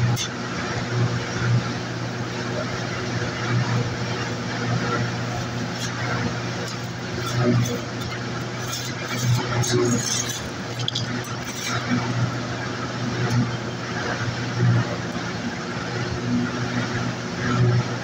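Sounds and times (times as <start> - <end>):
motor idling hum: 0.0 - 18.0
metal scriber scratching steel: 5.3 - 12.1.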